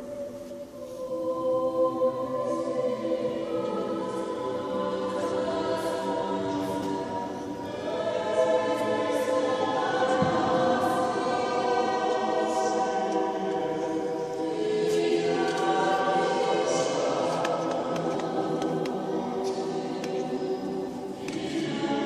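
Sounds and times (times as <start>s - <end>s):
mixed choir singing chords: 0.0s - 22.0s.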